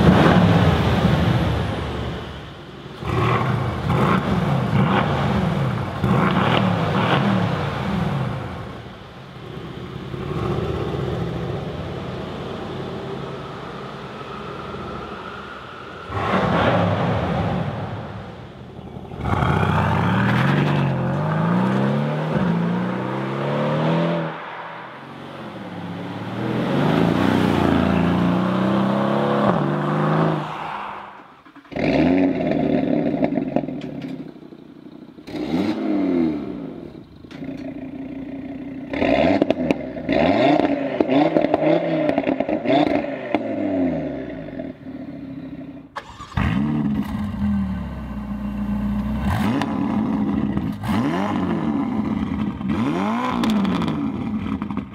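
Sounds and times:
sports car engine revving: 35.2 - 54.9.

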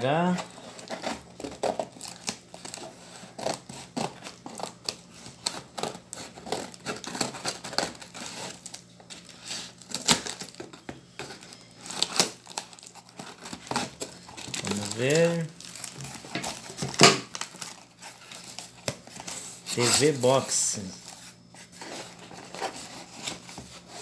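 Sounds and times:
plastic crinkling and tearing: 0.0 - 21.2, 21.8 - 24.0
scissors snipping plastic and tape: 3.4 - 8.3.

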